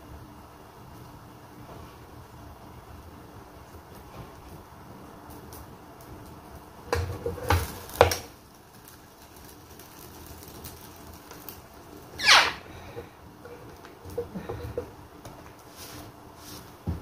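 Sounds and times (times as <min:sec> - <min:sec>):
low background hum: 0:00.0 - 0:17.0
short falling squeak: 0:12.2 - 0:12.6.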